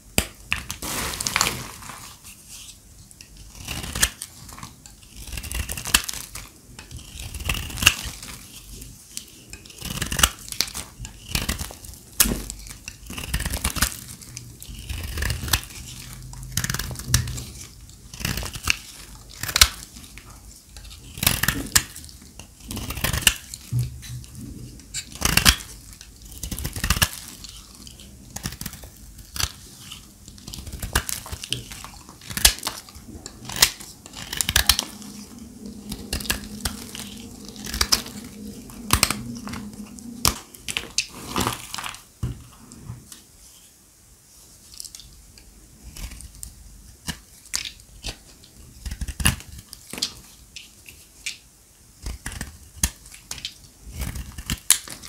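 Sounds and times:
knife cutting brittle soap: 0:02.4 - 0:34.9, 0:45.8 - 0:51.4, 0:52.0 - 0:55.0.

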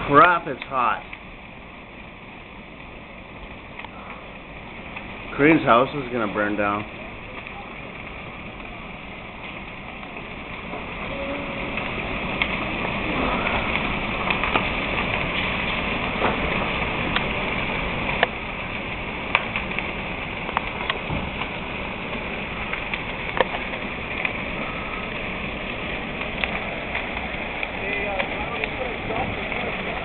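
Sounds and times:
burning timber cracking and popping: 0:00.0 - 0:30.0
fire roaring: 0:00.0 - 0:30.0.

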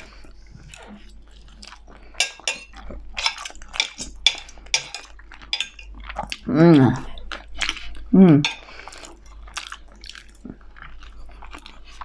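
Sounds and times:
person chewing food: 0:00.0 - 0:12.0
cutlery scraping a ceramic plate: 0:02.2 - 0:05.9, 0:08.4 - 0:08.7.

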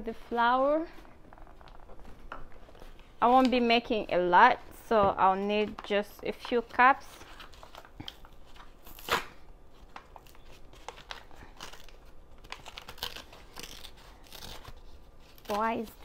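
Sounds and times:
paper bag crinkling and tearing: 0:06.5 - 0:16.0.

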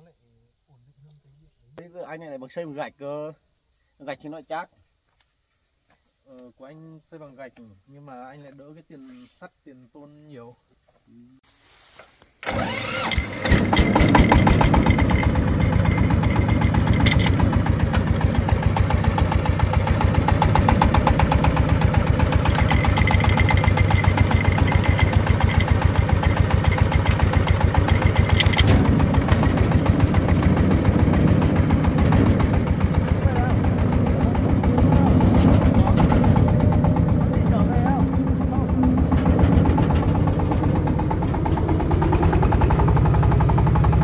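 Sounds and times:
diesel tractor engine chugging: 0:12.4 - 0:44.0.

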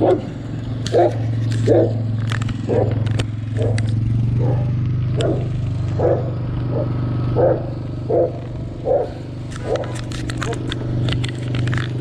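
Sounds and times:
dog barking: 0:00.0 - 0:00.3, 0:00.9 - 0:02.0, 0:02.7 - 0:03.0, 0:03.6 - 0:03.8, 0:04.4 - 0:10.6
low motor hum: 0:00.0 - 0:12.0.

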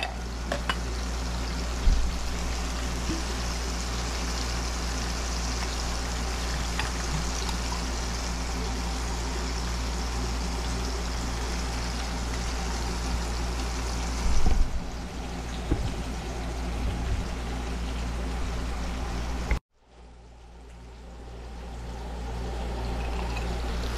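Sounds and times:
cooktop fan hum: 0:00.0 - 0:23.9
fish sizzling in a frying pan: 0:00.2 - 0:15.4.

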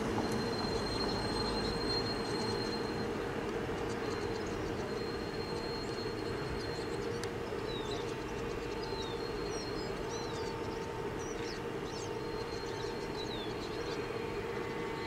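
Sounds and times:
small birds chirping: 0:03.8 - 0:15.0.

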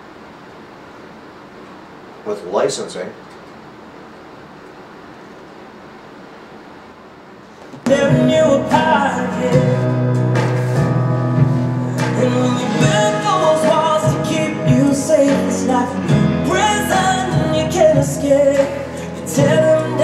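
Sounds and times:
song with singing and instruments: 0:07.6 - 0:20.0.

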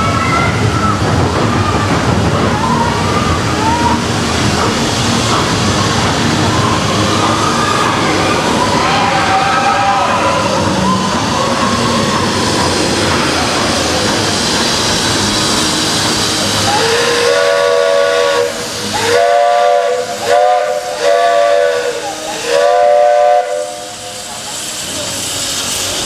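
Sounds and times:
steam hissing: 0:00.0 - 0:26.0
steam locomotive whistle: 0:16.5 - 0:25.0.

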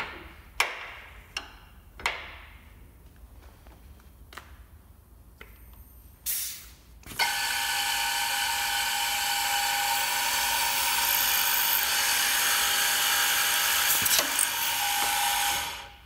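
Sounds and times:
drilling machine high whine: 0:07.2 - 0:16.0.

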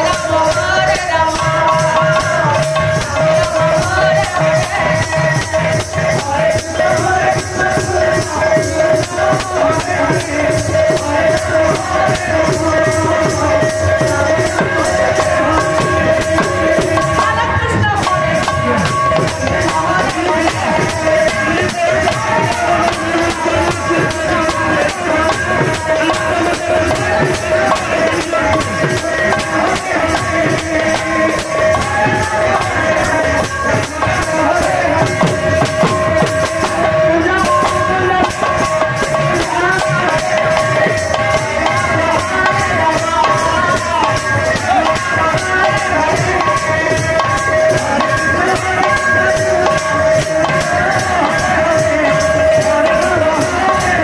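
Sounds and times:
hand drums fast rhythm: 0:00.0 - 0:54.0
jingling metal percussion: 0:00.0 - 0:54.0.

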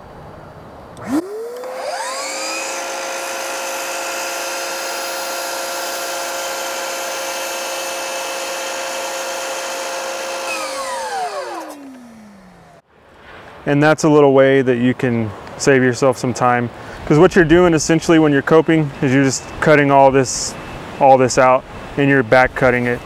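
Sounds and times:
saw switch click: 0:01.0 - 0:02.0, 0:10.4 - 0:12.2
miter saw motor whining: 0:01.0 - 0:12.8.

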